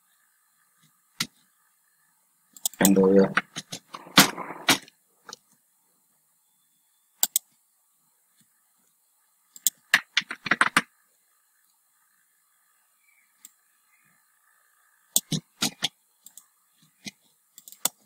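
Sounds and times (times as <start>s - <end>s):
computer keyboard keystrokes: 9.6s - 10.9s.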